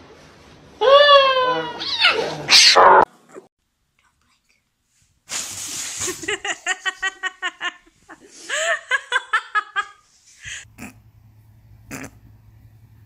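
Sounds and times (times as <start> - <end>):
person laughing: 6.0 - 10.7.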